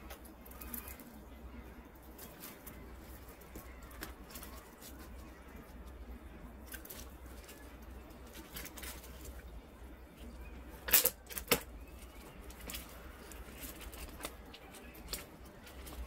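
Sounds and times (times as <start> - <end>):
paper crinkling and rustling: 2.0 - 9.6, 10.8 - 16.0
loud paper crackles: 10.8 - 16.0.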